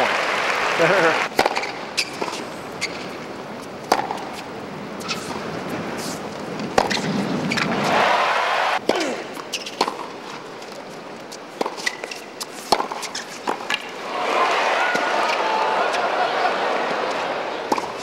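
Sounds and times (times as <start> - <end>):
crowd noise: 0.0 - 1.4, 4.7 - 9.4, 13.8 - 18.0
racquet striking tennis ball: 1.4 - 3.1, 3.8 - 4.4, 6.6 - 8.2, 8.8 - 10.1, 11.6 - 13.9, 16.8 - 18.0.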